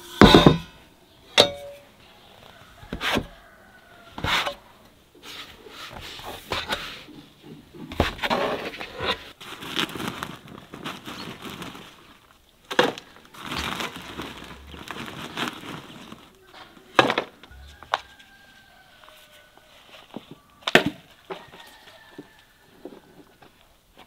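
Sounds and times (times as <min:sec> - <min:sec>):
gritty rustling of soil and sack: 0:02.2 - 0:24.0.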